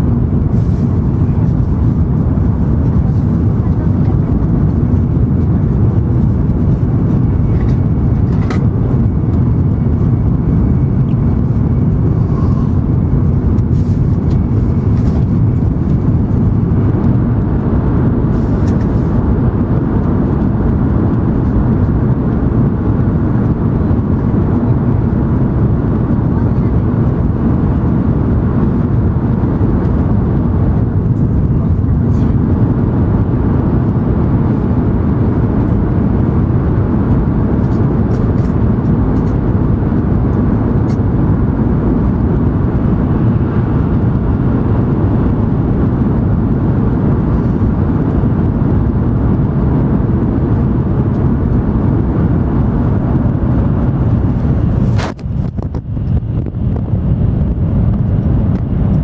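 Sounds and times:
train cabin rumble: 0:00.0 - 0:45.2.

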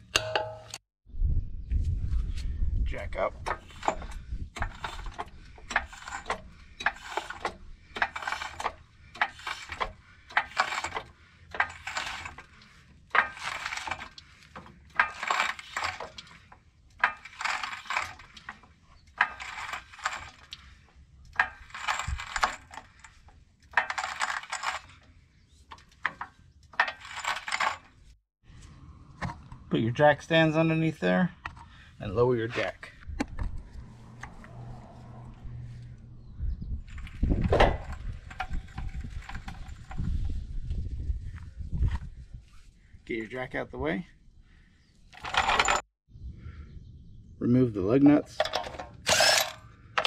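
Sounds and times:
jack pumping with metallic clinks: 0:03.4 - 0:28.2, 0:36.9 - 0:40.2, 0:45.1 - 0:45.9, 0:48.4 - 0:50.0.

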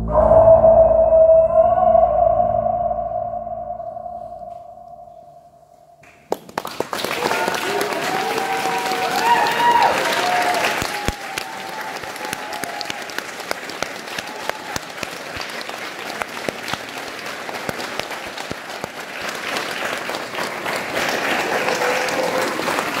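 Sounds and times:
audience applauding: 0:06.0 - 0:23.0.

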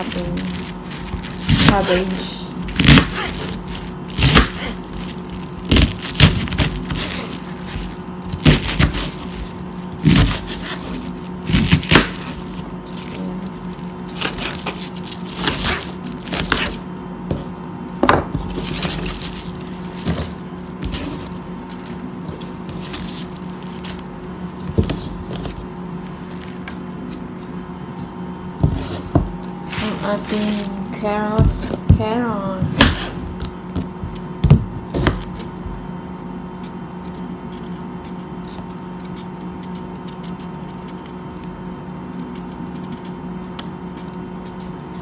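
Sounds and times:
knife cutting cabbage on board: 0:00.0 - 0:13.4, 0:14.0 - 0:17.5, 0:28.6 - 0:30.7
steady low hum: 0:00.0 - 0:45.0.

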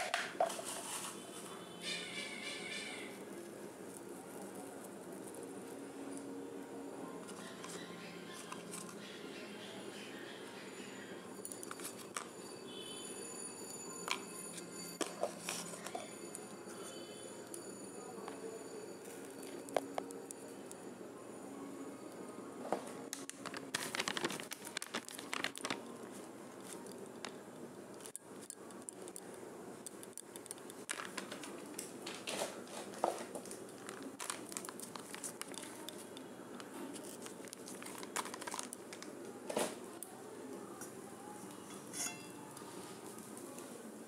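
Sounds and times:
plastic packaging crinkling: 0:23.1 - 0:27.4, 0:30.8 - 0:39.2.

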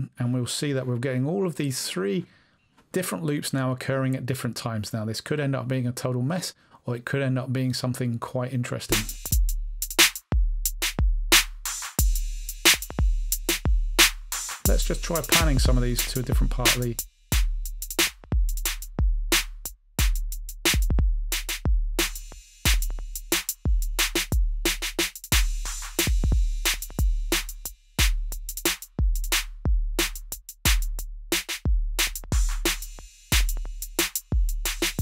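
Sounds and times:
fast hi-hats: 0:08.9 - 0:35.0
deep kick drums: 0:10.3 - 0:31.0, 0:31.7 - 0:35.0.

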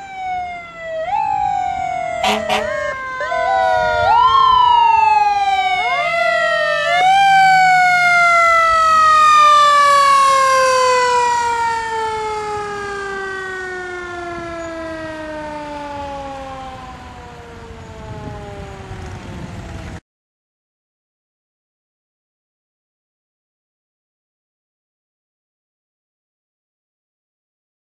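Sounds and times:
emergency siren whooping and wailing: 0:00.0 - 0:20.0.

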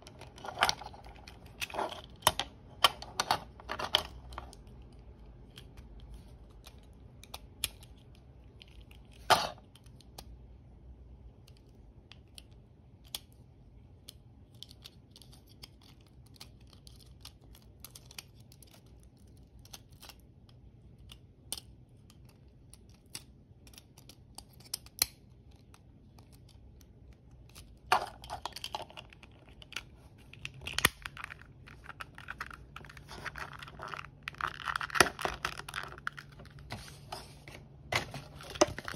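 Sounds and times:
plastic rubbing: 0:27.8 - 0:38.9.

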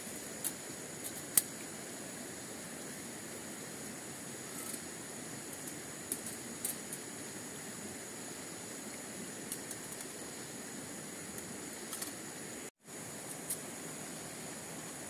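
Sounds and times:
high steady hum: 0:00.0 - 0:15.0
outdoor background hiss: 0:00.0 - 0:15.0.

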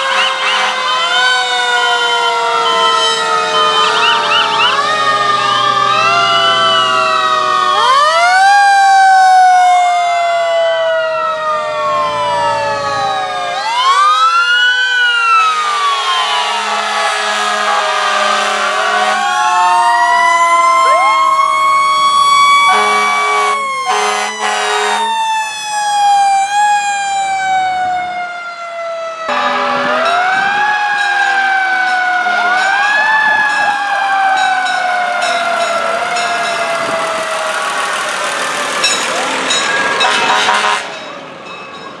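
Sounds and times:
fire engine sirens wailing: 0:00.0 - 0:42.0
short horn blasts: 0:16.6 - 0:19.2, 0:22.7 - 0:25.1, 0:40.0 - 0:41.0.

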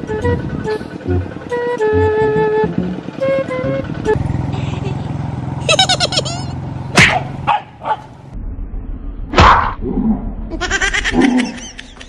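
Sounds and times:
small dog barking and yelping: 0:07.0 - 0:08.0.

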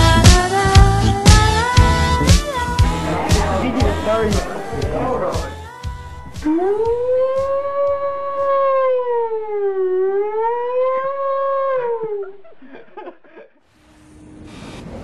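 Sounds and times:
man imitating a siren: 0:06.4 - 0:12.6.

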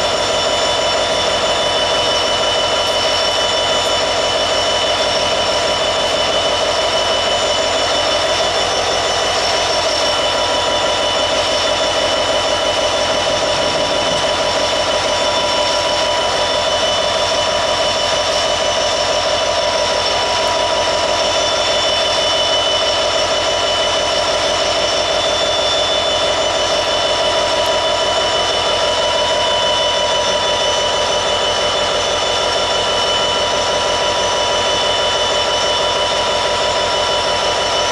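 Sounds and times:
diesel locomotive engine droning: 0:00.0 - 0:37.9
high whining tones: 0:00.1 - 0:18.4.

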